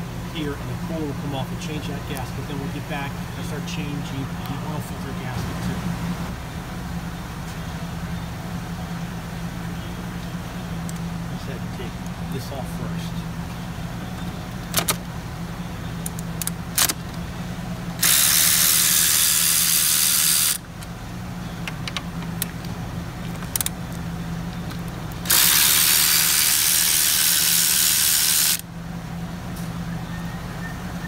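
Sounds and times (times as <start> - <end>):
tools clicking against engine: 23.3 - 28.6.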